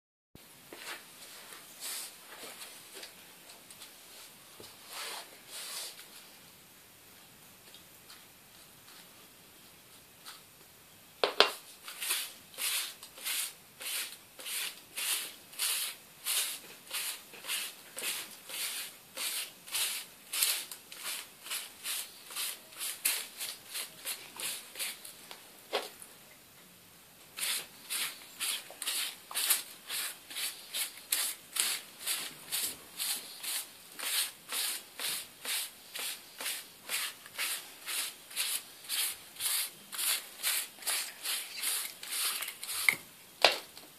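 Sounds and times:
sponge scrubbing on paper: 11.9 - 25.0, 27.4 - 42.9.

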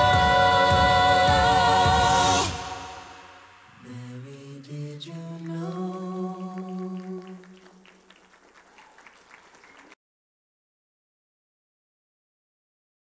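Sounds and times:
person singing: 0.0 - 7.6.

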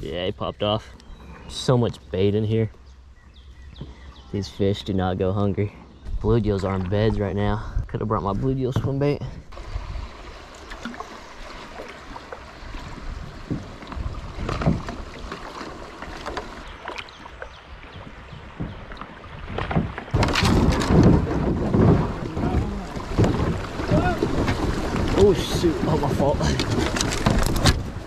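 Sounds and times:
water lapping at hull: 0.0 - 28.0
wind buffeting microphone: 5.6 - 10.5, 16.5 - 28.0
paddle knocks: 8.3 - 9.1, 11.7 - 28.0
rush of fast water: 9.5 - 28.0.

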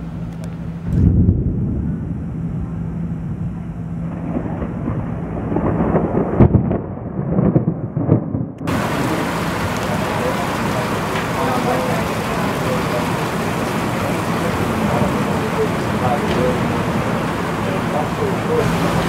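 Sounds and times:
rolling thunder: 0.8 - 19.0
heavy rain hissing: 8.7 - 19.0.

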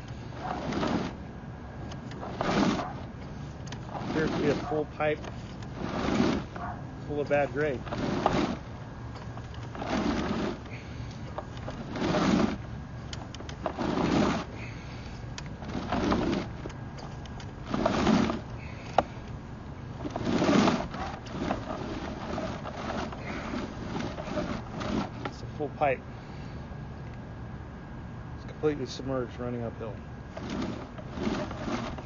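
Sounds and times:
steady low hum: 0.0 - 32.0
cable swishing in drain: 2.2 - 3.1, 3.8 - 8.7, 20.0 - 25.4, 30.3 - 32.0.

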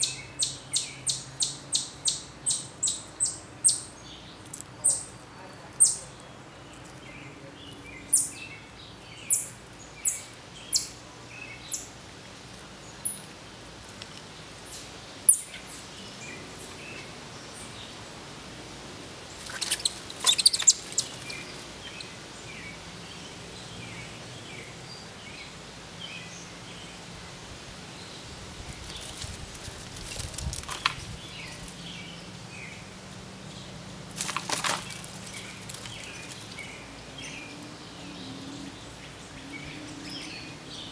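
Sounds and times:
bird chirps: 0.0 - 5.2, 19.4 - 22.1
rustling in leaf litter: 11.4 - 22.9, 26.2 - 33.3, 34.0 - 40.9.

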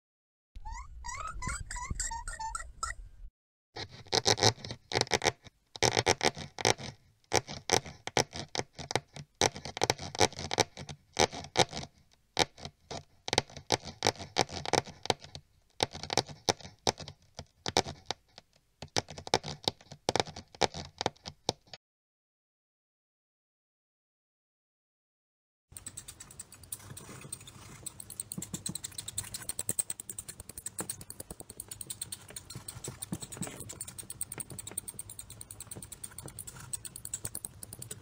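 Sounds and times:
mice scurrying and scratching: 25.8 - 38.0.

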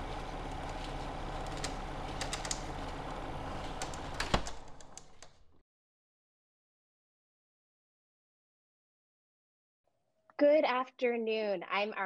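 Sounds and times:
low mechanical hum: 0.0 - 5.6.

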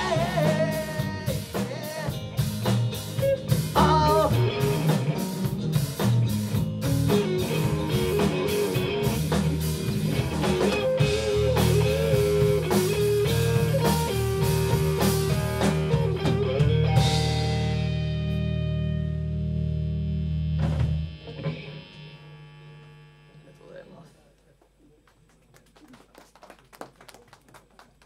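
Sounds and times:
rock band playing: 0.0 - 22.0
guitar chord ringing: 6.8 - 23.7.

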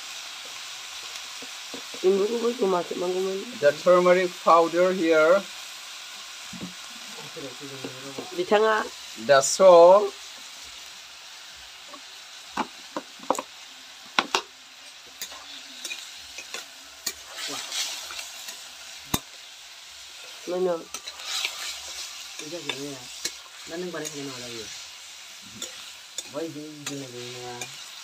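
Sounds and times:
meat sizzling in a wok: 0.0 - 28.0
metal spatula scraping a wok: 14.8 - 28.0.

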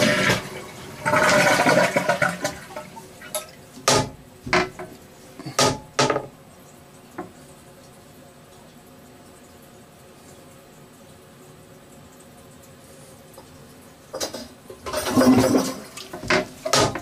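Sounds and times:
toilet flushing: 0.0 - 6.0, 13.4 - 17.0.

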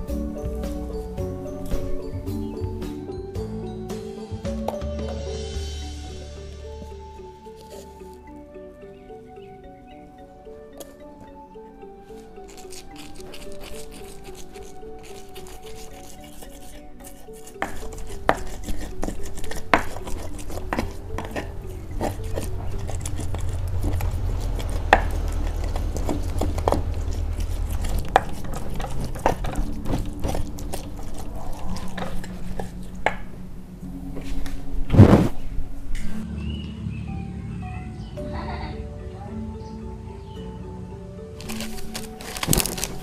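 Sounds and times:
stone pestle grinding in mortar: 6.6 - 8.3, 12.0 - 33.9, 41.4 - 43.0
loud thump: 34.9 - 35.5.

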